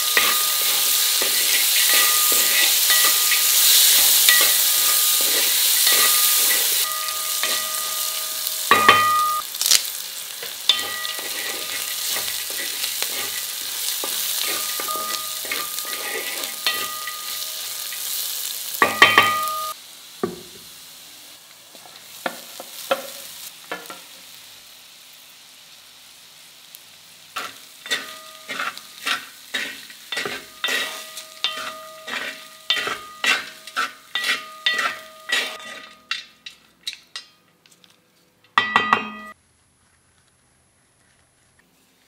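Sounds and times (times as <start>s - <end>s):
metal spoon scraping a ringing pan: 0.0s - 9.5s, 10.4s - 19.8s, 27.4s - 37.4s, 38.6s - 39.4s
food sizzling in oil: 0.0s - 36.7s.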